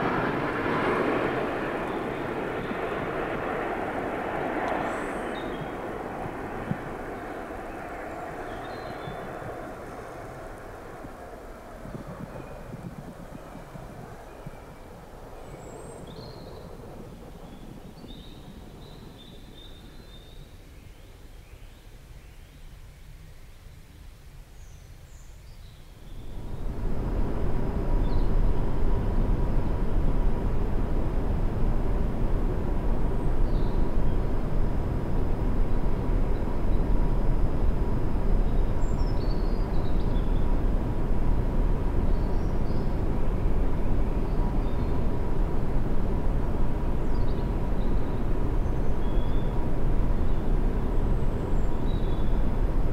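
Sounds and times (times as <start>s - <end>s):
distant jet engine rumble: 0.0s - 22.1s, 25.9s - 52.9s
birds chirping: 0.6s - 21.2s
rising bird calls: 4.8s - 16.8s.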